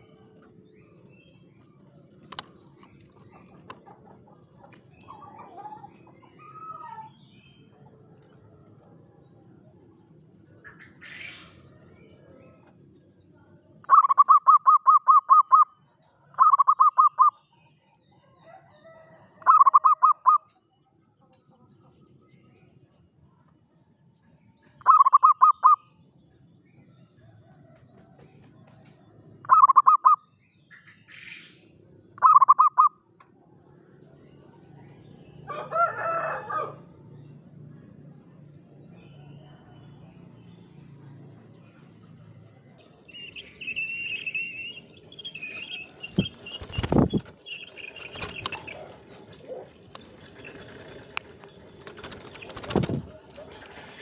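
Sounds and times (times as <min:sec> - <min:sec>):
rooster crowing: 0:35.4 - 0:36.9.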